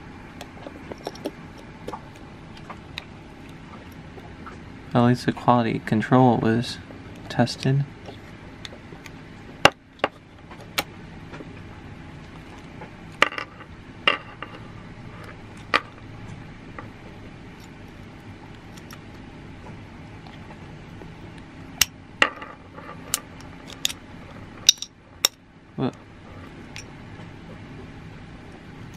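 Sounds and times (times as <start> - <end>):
quiet steady hum: 0.0 - 28.9.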